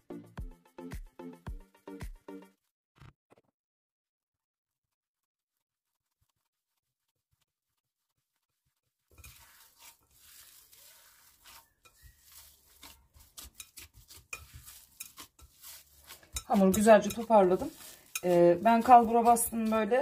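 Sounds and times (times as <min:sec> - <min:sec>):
dough scraping in bowl: 0:09.1 - 0:20.0.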